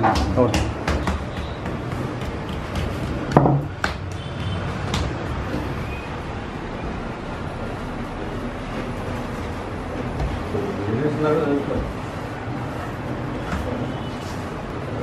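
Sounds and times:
rolling pin knocking on table: 0:00.0 - 0:05.2.

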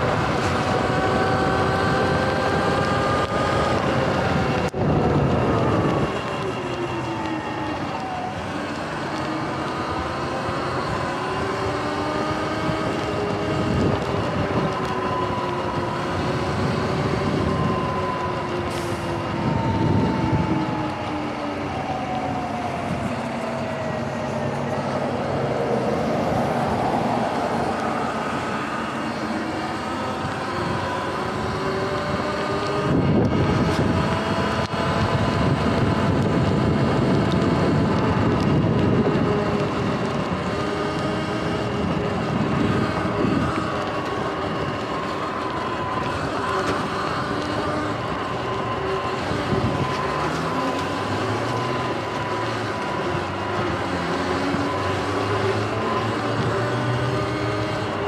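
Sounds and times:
electric motor whining: 0:00.0 - 0:58.0
tyre noise on wet pavement: 0:00.0 - 0:58.0
wind on microphone: 0:00.0 - 0:58.0.

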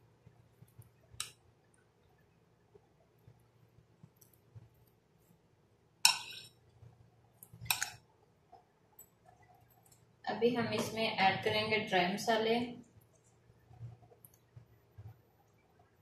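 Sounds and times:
spoon mixing food in bowl: 0:06.1 - 0:08.0.

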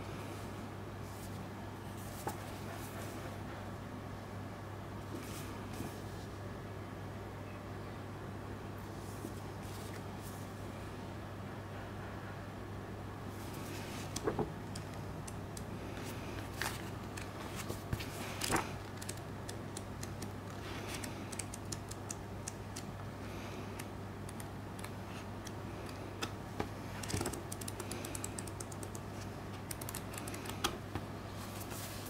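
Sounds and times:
paper clicks and rustles: 0:13.6 - 0:15.4, 0:16.0 - 0:22.1
page turns: 0:13.7 - 0:14.5.

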